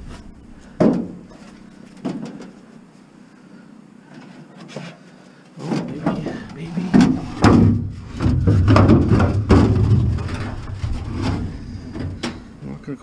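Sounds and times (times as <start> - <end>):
sheet-metal duct banging and clanking: 5.7 - 12.6.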